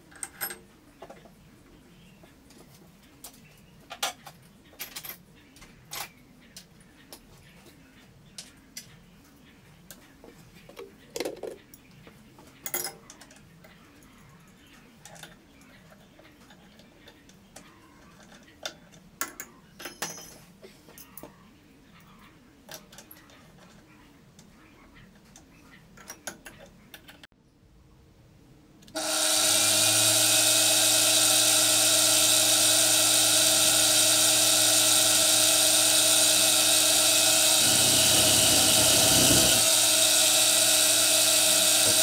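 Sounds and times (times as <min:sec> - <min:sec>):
metal tools clinking: 0:19.8 - 0:20.5.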